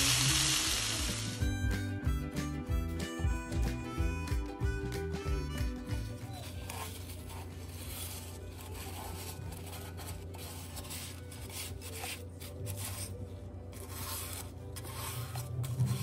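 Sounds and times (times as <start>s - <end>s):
paper towel wiping grill plate: 6.2s - 13.2s, 13.8s - 16.0s.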